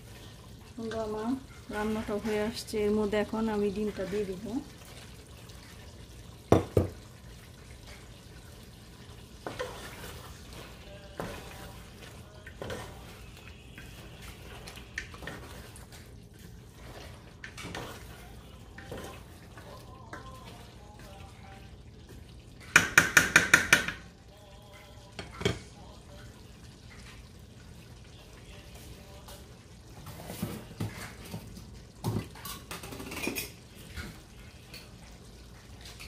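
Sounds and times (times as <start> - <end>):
spoon knocking against pan: 6.5 - 7.0, 22.6 - 24.1
spoon tapping on pot: 6.5 - 7.0, 22.6 - 24.1
spoon stirring curry in a pot: 9.2 - 25.4.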